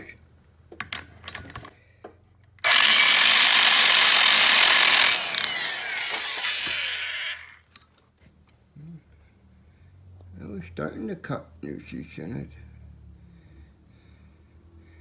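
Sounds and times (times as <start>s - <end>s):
grinder motor whining down: 2.6s - 7.6s.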